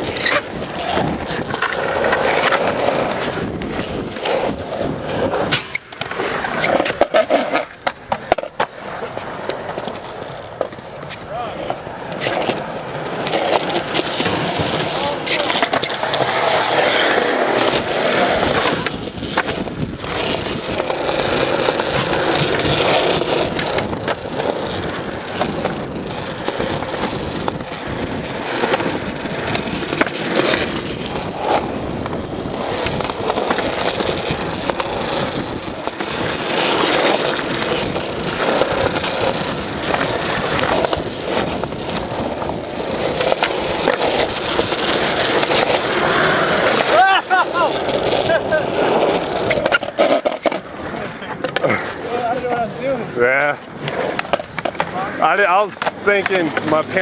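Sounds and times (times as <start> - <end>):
skateboard clacks: 0.0 - 57.0
skateboard grinding metal rail: 0.0 - 57.0
skateboard wheels rolling on concrete: 0.0 - 57.0.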